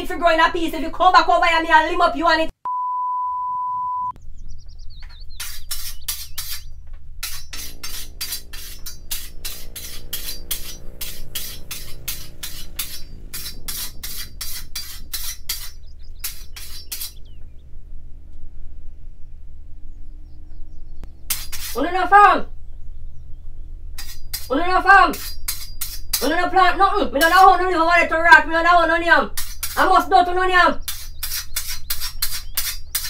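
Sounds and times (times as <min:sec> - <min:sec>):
censor bleep: 0:02.6 - 0:04.2
machete blade being sharpened: 0:05.4 - 0:17.2, 0:21.3 - 0:21.8, 0:24.0 - 0:24.5, 0:25.1 - 0:26.2, 0:29.4 - 0:29.8, 0:30.8 - 0:33.0.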